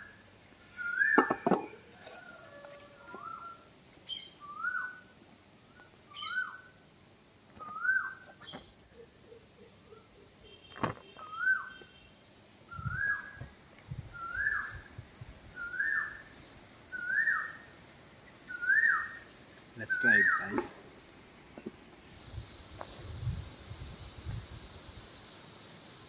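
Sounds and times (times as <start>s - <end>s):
bird whistled call: 0.7s - 1.3s, 3.2s - 5.1s, 6.1s - 6.7s, 7.6s - 8.6s, 11.2s - 11.9s, 12.7s - 13.4s, 14.2s - 14.9s, 15.6s - 16.3s, 16.9s - 17.6s, 18.5s - 19.2s.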